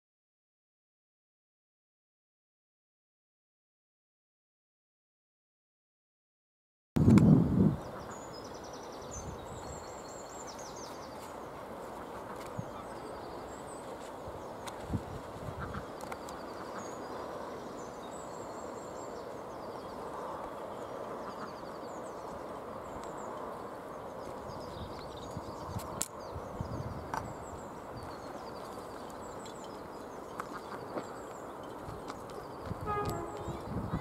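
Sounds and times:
small birds chirping: 0:07.3 - 0:34.0.

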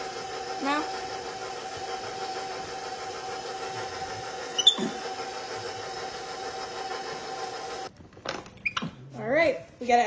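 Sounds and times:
stand mixer motor whine: 0:00.0 - 0:07.9
short high squeak: 0:04.5 - 0:05.0.

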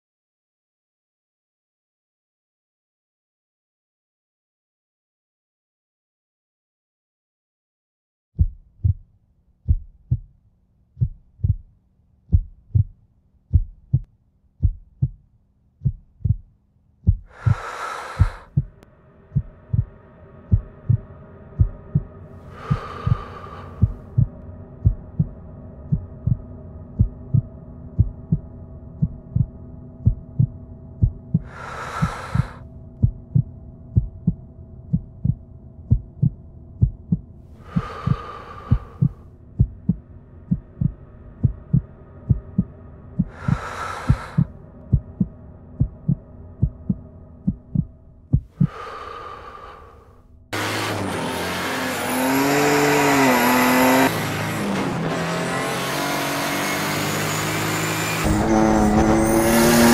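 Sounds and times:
heartbeat thumps: 0:08.4 - 0:49.2
sustained drone: 0:17.4 - 0:59.9.

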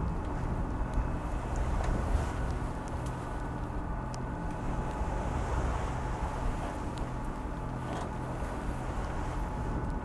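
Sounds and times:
sail cover ticks: 0:00.0 - 0:05.0, 0:06.6 - 0:08.3
boat engine running: 0:00.0 - 0:10.0
faint hum: 0:00.0 - 0:10.0
wind rumble: 0:00.0 - 0:10.0.

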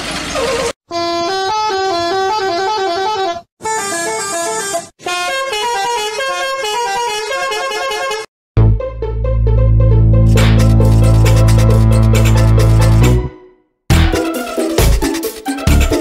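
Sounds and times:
musical bus horn melody: 0:00.9 - 0:13.6.

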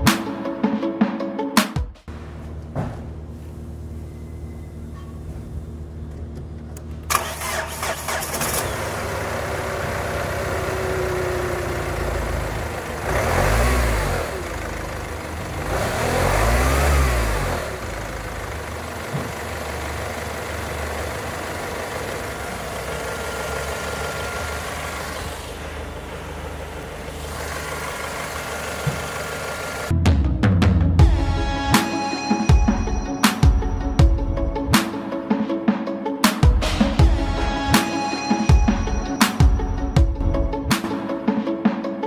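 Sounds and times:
diesel engine starting and idling: 0:02.1 - 0:30.0
engine revving: 0:07.1 - 0:29.9.

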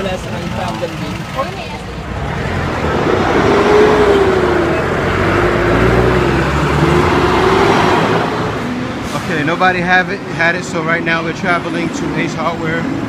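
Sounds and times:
diesel engine: 0:00.0 - 0:13.0
road noise: 0:00.0 - 0:13.0.

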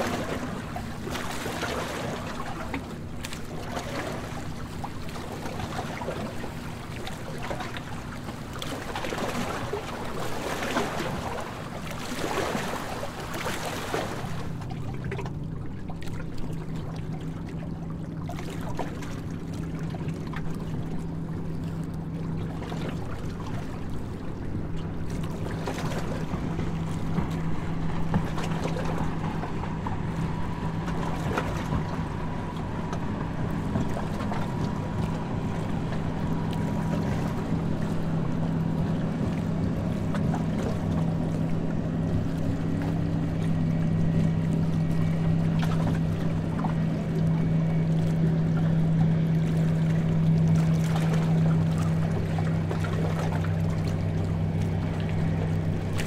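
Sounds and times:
water rushing: 0:00.0 - 0:21.7
boat engine drone: 0:00.0 - 0:56.0
wind: 0:00.0 - 0:56.0.

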